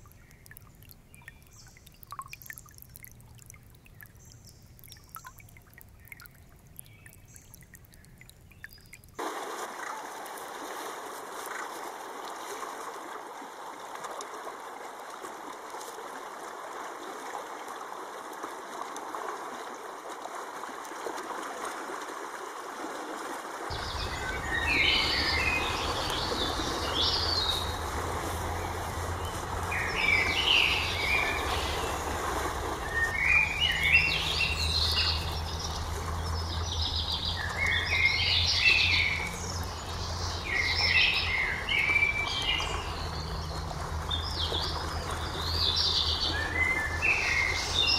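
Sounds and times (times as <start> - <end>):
birds chirping and trilling: 23.7 - 28.0, 28.6 - 32.1, 32.8 - 47.9
low steady hum: 23.7 - 47.9
soft steady rushing noise: 23.7 - 47.9.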